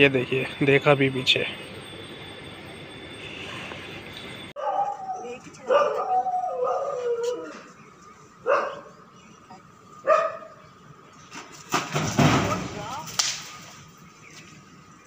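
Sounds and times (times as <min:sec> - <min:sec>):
dog barking: 0:04.6 - 0:07.3, 0:08.4 - 0:08.9, 0:10.0 - 0:10.6.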